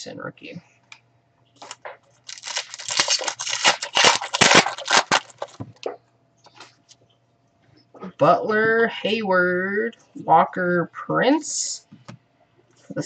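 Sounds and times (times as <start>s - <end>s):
wrapper tearing and crinkling: 1.6s - 5.9s.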